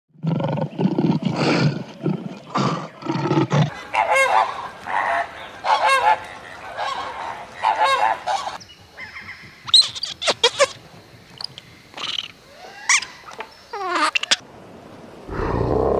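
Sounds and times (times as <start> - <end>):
lion growling: 0.2 - 3.7, 15.3 - 15.9
flamingos honking: 3.7 - 8.6.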